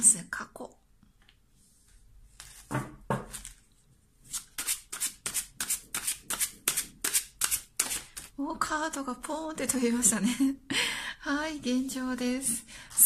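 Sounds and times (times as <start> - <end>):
cards being shuffled: 2.4 - 3.7, 4.3 - 8.3.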